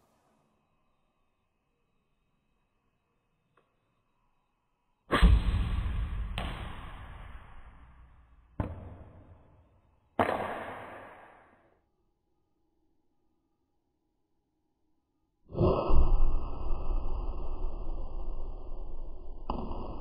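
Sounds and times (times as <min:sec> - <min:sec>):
vapour explosion blasts: 0:05.1 - 0:07.2.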